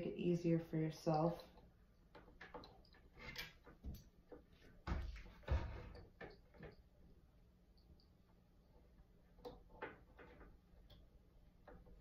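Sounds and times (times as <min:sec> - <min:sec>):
light handling clicks and knocks: 0:09.3 - 0:12.0.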